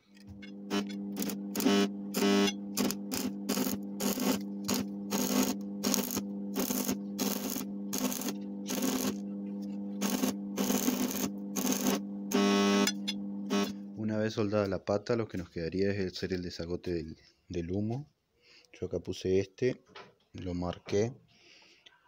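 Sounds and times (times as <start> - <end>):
steady electrical hum: 0.0 - 16.4
welding arc crackling and sputtering: 0.2 - 13.8.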